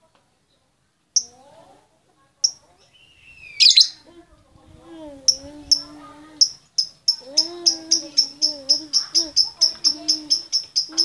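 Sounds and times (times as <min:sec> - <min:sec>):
lovebird chirping: 0:02.4 - 0:04.1, 0:05.2 - 0:11.0.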